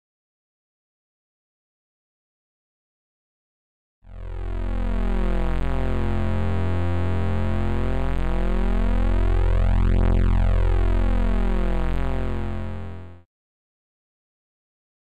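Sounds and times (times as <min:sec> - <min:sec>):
synthesizer drone: 0:04.1 - 0:13.2.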